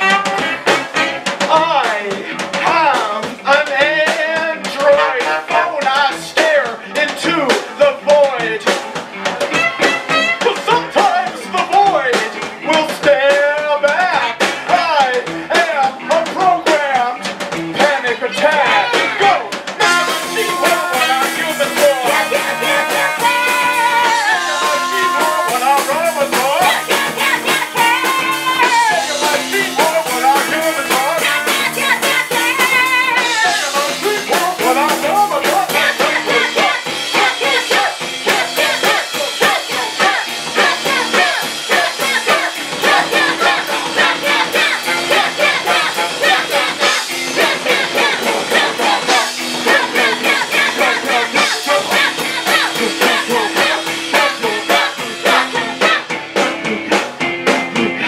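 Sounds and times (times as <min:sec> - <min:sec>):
saxophone melody: 0:00.0 - 0:01.3, 0:04.8 - 0:06.1, 0:09.4 - 0:11.3, 0:18.5 - 0:56.2
rock band playing: 0:00.0 - 0:58.0.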